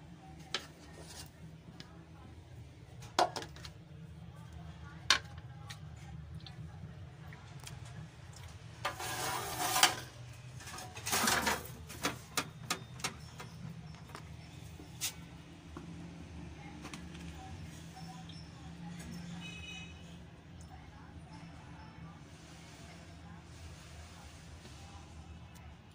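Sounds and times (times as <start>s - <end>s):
spoon scraping and clinking pot: 8.8s - 13.5s.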